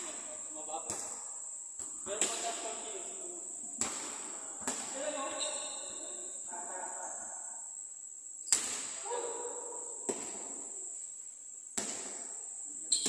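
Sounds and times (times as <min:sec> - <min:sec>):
basketball bouncing on gym floor: 0:11.8 - 0:12.3.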